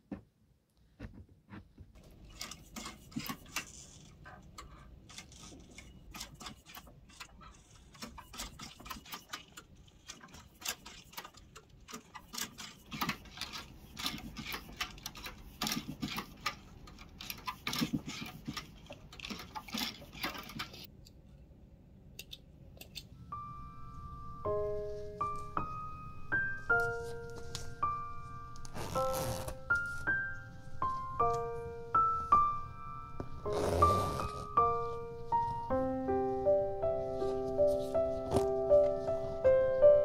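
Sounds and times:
sewing machine stitching leather: 1.9s - 20.9s, 28.7s - 29.6s, 33.5s - 34.5s.

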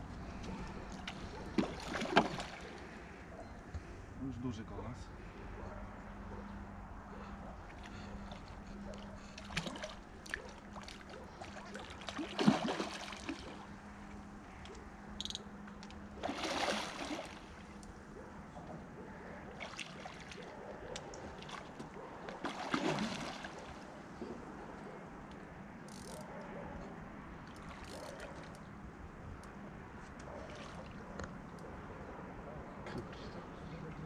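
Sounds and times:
fish splashing in water: 0.9s - 2.8s, 9.3s - 13.7s, 16.2s - 17.7s, 19.4s - 23.9s.

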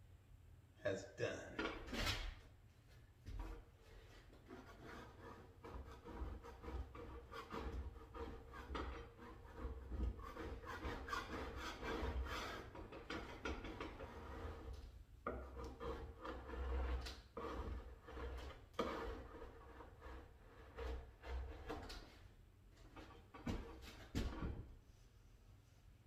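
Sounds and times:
paint scraper scraping wood: 3.3s - 22.1s, 22.8s - 24.6s.

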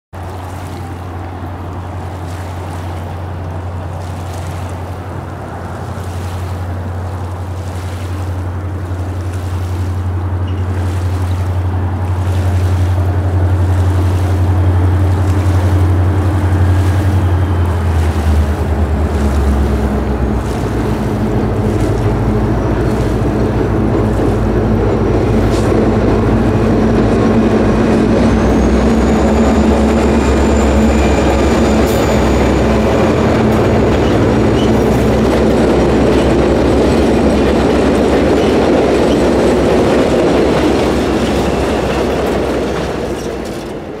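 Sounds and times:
diesel locomotive engine drone: 0.2s - 44.0s
train wheels rumbling on rails: 0.2s - 44.0s
high wheel squeal: 28.0s - 36.5s.

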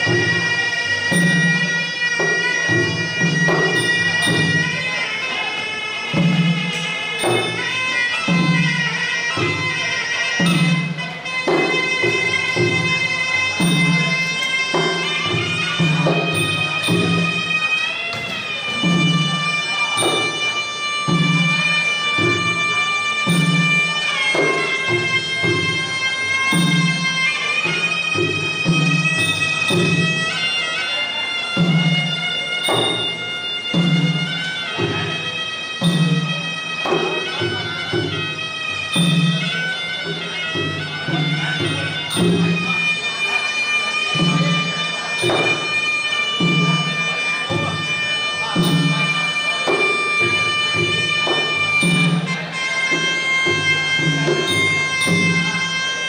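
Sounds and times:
drum beat: 53.6s - 55.6s.

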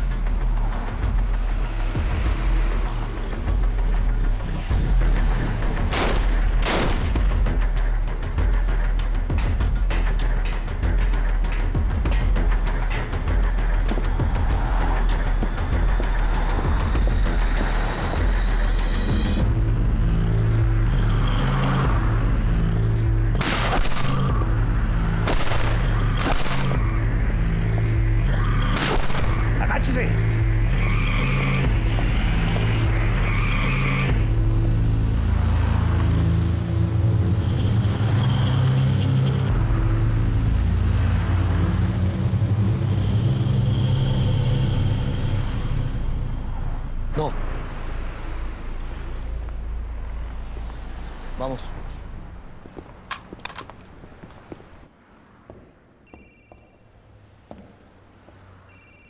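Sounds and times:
tense music with low bass notes: 0.0s - 53.6s
road traffic rumble: 0.0s - 59.0s
gunshots: 5.9s - 7.2s, 23.4s - 24.3s, 25.2s - 26.8s, 28.8s - 29.4s.

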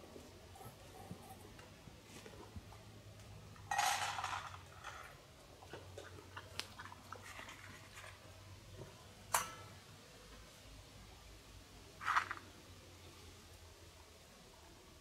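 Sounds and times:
puppy chewing and crunching: 5.2s - 8.3s.

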